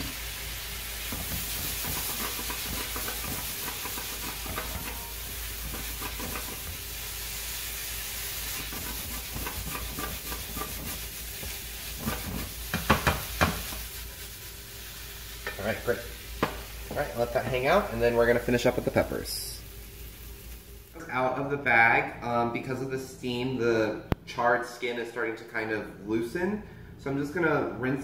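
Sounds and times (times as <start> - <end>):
vegetables sizzling in a frying pan: 0.0 - 21.0
spatula knocking on pan: 1.1 - 6.8, 8.6 - 13.8
wooden spatula scraping: 1.2 - 6.8, 8.4 - 14.3.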